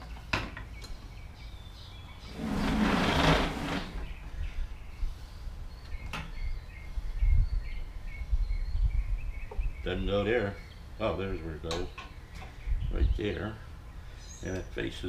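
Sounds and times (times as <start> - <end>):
scraping rustle: 2.2 - 4.2.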